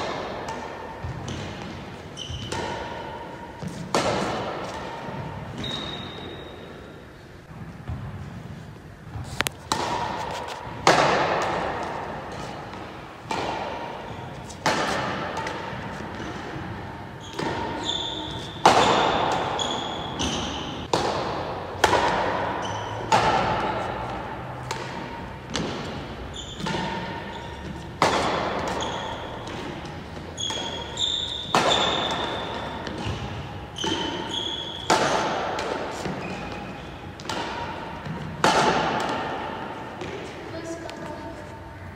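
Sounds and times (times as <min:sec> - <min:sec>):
racket hitting shuttlecock: 0:00.0 - 0:08.2, 0:09.2 - 0:41.2
shoe squeaks: 0:02.0 - 0:03.8, 0:04.6 - 0:07.2, 0:14.0 - 0:14.6, 0:17.2 - 0:20.9, 0:22.6 - 0:23.1, 0:26.2 - 0:27.9, 0:28.5 - 0:35.0, 0:35.9 - 0:37.2.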